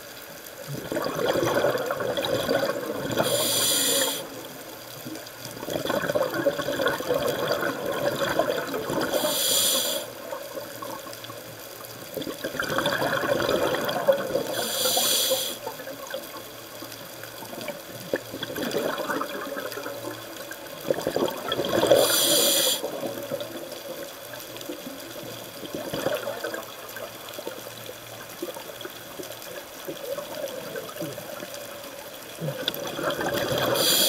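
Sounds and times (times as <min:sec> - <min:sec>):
exhaled bubbles underwater: 0:00.0 - 0:34.0
regulator hiss: 0:03.1 - 0:04.7, 0:09.0 - 0:10.4, 0:14.4 - 0:15.9, 0:21.8 - 0:23.3, 0:33.5 - 0:34.0.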